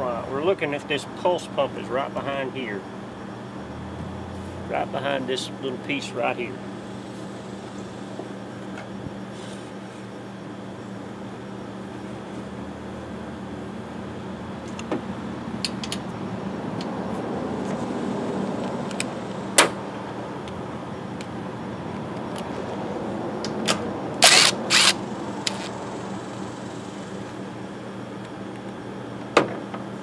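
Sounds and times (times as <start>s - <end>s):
low hum: 2.8s - 5.0s
cordless driver spinning: 24.2s - 25.8s.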